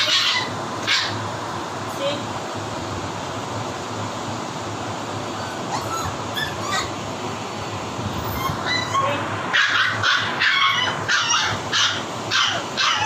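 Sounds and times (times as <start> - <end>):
background hiss and hum: 0.0 - 13.0
puppies yipping and whining: 5.3 - 7.1, 8.1 - 13.0.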